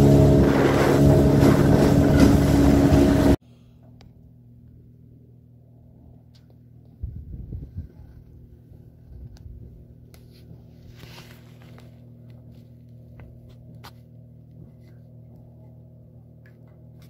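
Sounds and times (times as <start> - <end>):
boat engine idling: 0.0 - 5.9.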